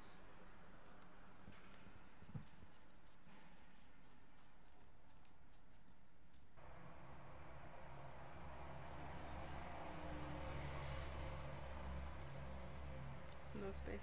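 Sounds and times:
marker scratching on paper: 0:00.8 - 0:06.1.

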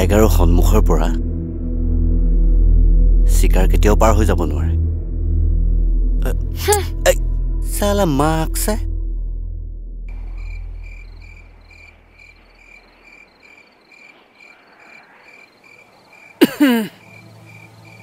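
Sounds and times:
low hum: 0:00.0 - 0:13.0
crickets chirping: 0:10.1 - 0:18.0.

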